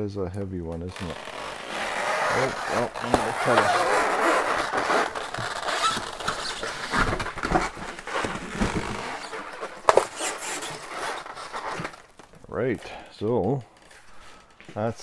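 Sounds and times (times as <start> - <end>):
styrofoam squeaking against cardboard: 0.9 - 12.2.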